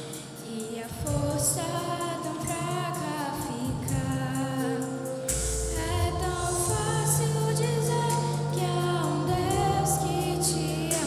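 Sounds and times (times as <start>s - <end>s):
girl singing into microphone: 0.0s - 11.0s
music accompaniment: 0.0s - 11.0s
children's choir singing: 5.7s - 11.0s.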